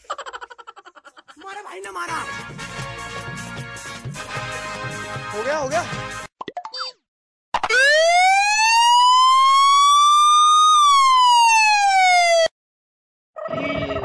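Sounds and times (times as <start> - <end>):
electronic siren-like tone: 13.4 - 14.0.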